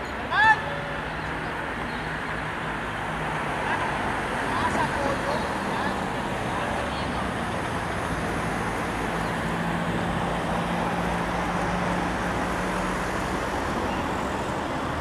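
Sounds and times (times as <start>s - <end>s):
low vehicle engine hum: 0.0s - 15.0s
road traffic noise: 0.0s - 15.0s.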